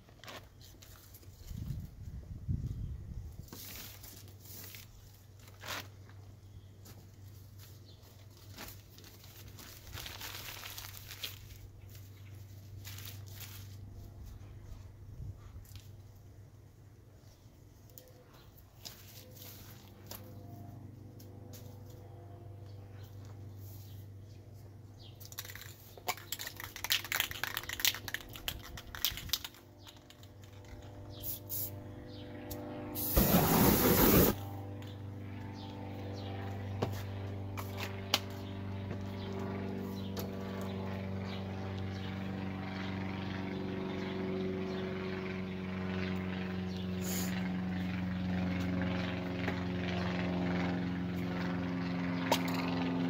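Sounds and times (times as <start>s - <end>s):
paper crinkling and rustling: 0.0s - 1.7s, 3.5s - 6.2s, 6.8s - 14.4s, 25.3s - 30.7s
steady low hum: 1.2s - 53.0s
spray paint cans rattling: 25.2s - 30.7s.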